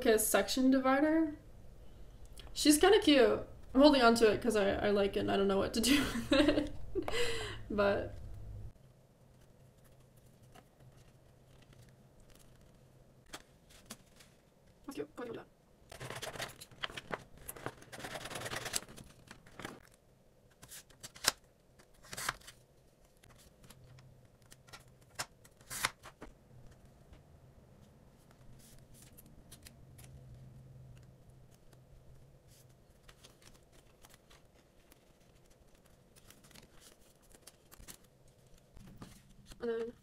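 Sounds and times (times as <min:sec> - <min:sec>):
paper and plastic rustling: 0:09.2 - 0:14.6, 0:15.9 - 0:27.0, 0:32.4 - 0:40.0.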